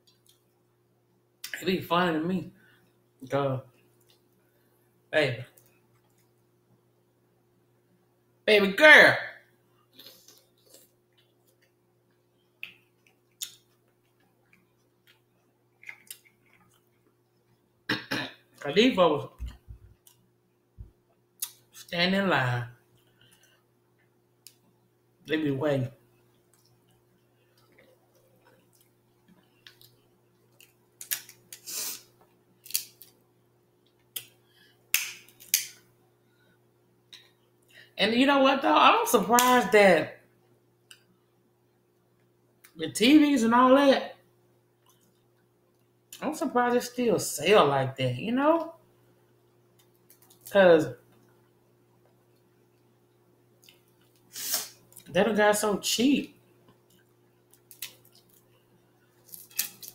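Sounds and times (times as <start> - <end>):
crab shells cracking: 29.6 - 31.6, 32.6 - 33.2, 34.9 - 35.8, 57.5 - 58.5, 59.2 - 59.9.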